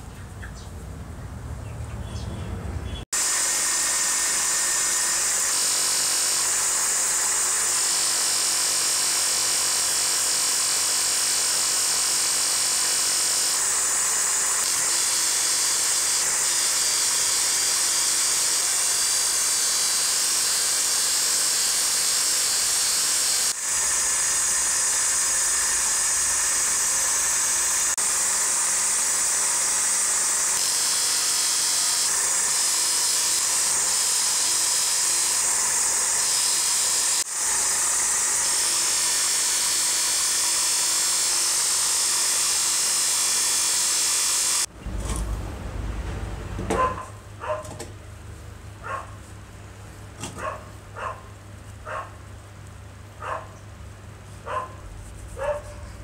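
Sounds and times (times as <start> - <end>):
power tool high whine: 3.1 - 45.9.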